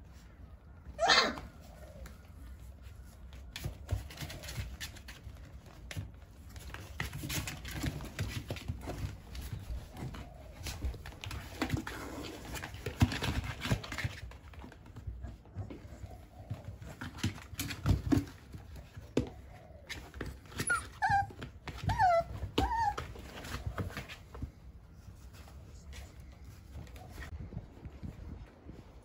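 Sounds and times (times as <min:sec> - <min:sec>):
puppy yelp: 0:00.9 - 0:01.8, 0:20.4 - 0:23.8
paws scratching on cardboard: 0:01.6 - 0:29.0.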